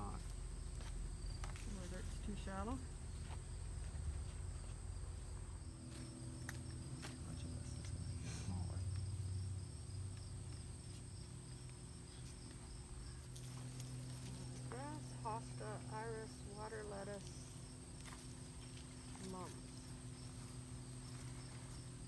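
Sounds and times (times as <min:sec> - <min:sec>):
low outdoor rumble: 0:00.0 - 0:22.0
lower pulsing insect trill: 0:00.0 - 0:22.0
insects trilling high: 0:05.2 - 0:22.0.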